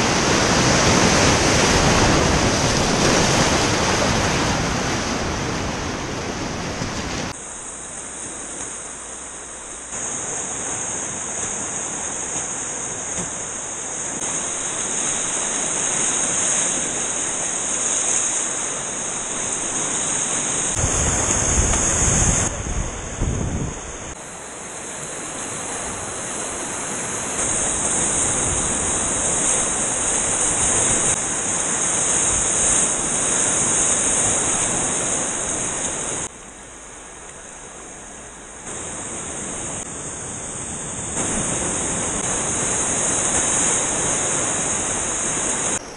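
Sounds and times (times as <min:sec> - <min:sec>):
river rapids roaring: 0:00.0 - 0:45.9
wind buffeting microphone: 0:20.7 - 0:24.2.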